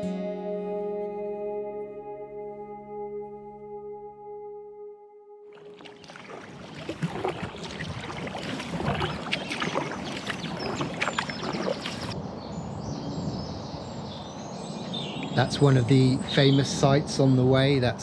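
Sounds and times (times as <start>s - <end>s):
kayak paddle strokes splashing: 5.5s - 12.2s
water rushing along hull: 5.5s - 12.2s
birds chirping: 5.6s - 17.7s.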